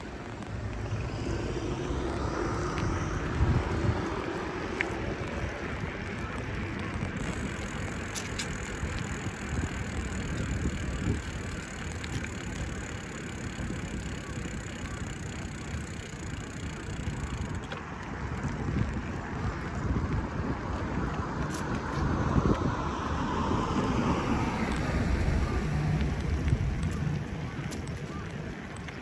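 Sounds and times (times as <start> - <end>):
bicycle rolling rumble: 0.0 - 29.0
wind on microphone: 0.0 - 29.0
faint ticks: 1.7 - 19.8.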